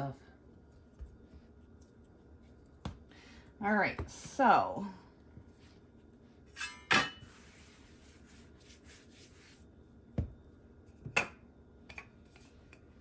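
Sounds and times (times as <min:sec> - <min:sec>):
soft rubbing on pastry mat: 0:00.1 - 0:03.1, 0:05.3 - 0:06.6, 0:07.2 - 0:11.0, 0:12.2 - 0:13.0.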